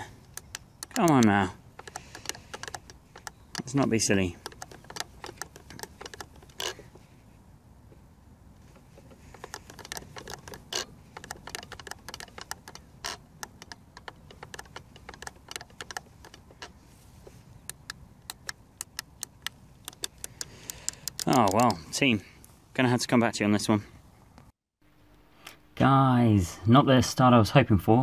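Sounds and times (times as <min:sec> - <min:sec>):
plastic clicks of transmitter buttons: 0:00.0 - 0:06.8, 0:09.0 - 0:21.8.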